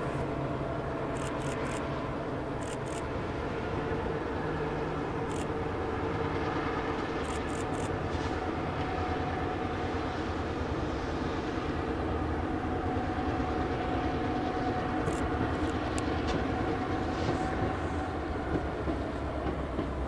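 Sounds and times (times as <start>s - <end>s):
diesel locomotive engine drone: 0.0s - 20.0s
train wheels clicking over rail joints: 1.1s - 1.8s, 14.6s - 20.0s.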